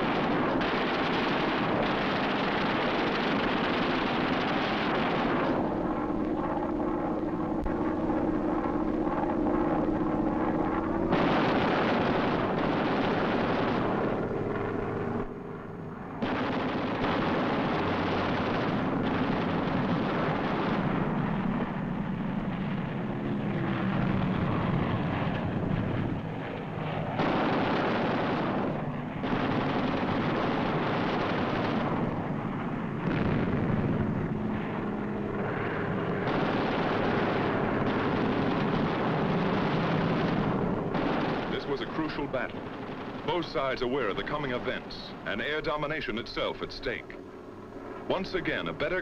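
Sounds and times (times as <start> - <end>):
gunfire: 0.0 - 5.6, 11.1 - 14.3, 16.2 - 21.4, 27.2 - 32.2, 33.0 - 34.0, 36.2 - 45.1
aircraft engines droning: 0.0 - 49.0.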